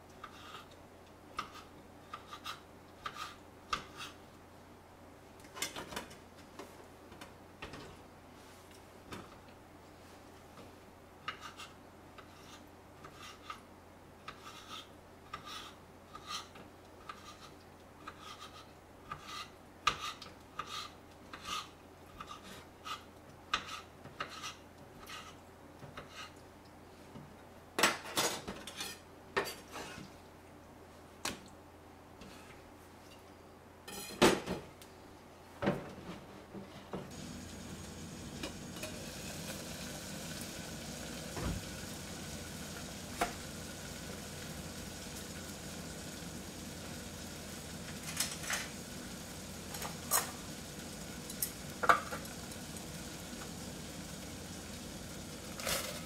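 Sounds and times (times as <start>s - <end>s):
water heating in pot hiss: 37.1s - 56.0s
metal utensils and dishes clattering: 49.8s - 50.4s, 55.6s - 56.0s.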